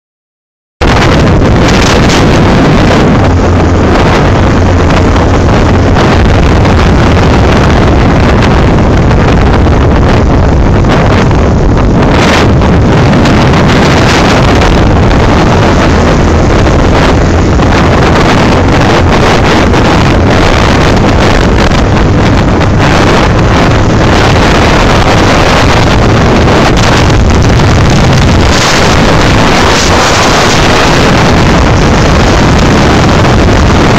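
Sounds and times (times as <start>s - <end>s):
motorcycle engine droning: 0.8s - 33.9s
wind buffeting microphone: 0.8s - 33.9s.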